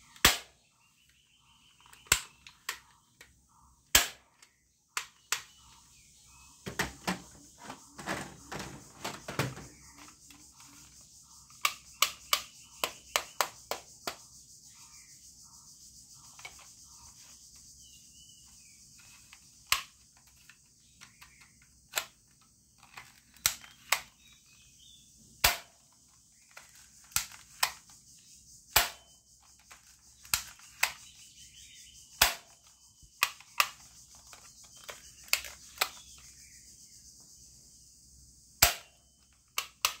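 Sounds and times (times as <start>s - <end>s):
plastic toy gun clicks: 0.1s - 0.5s, 1.7s - 3.3s, 3.9s - 5.6s, 19.2s - 24.3s, 25.4s - 27.9s, 28.7s - 31.0s, 32.1s - 32.6s, 33.2s - 36.2s, 38.6s - 40.0s.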